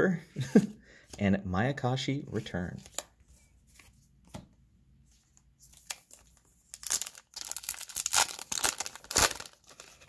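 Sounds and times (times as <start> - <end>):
foil pack crinkling and tearing: 5.9 - 10.0.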